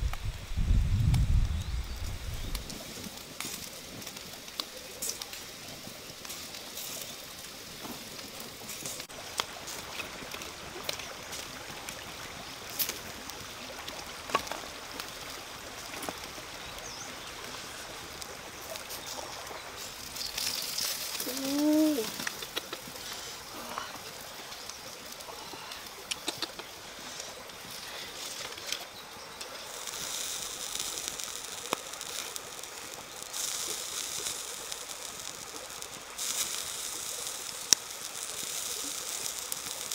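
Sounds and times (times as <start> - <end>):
meat sizzling: 0.0 - 39.9
wood fire crackling: 0.0 - 39.9
sharp pops: 20.1 - 23.0.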